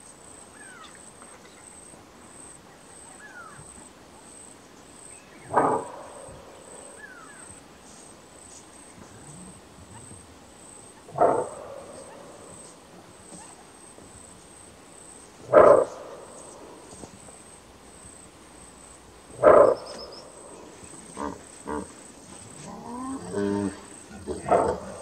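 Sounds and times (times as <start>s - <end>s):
antelope barking: 5.3s - 7.5s, 11.0s - 13.8s, 15.4s - 17.0s, 19.3s - 21.9s, 22.5s - 25.0s.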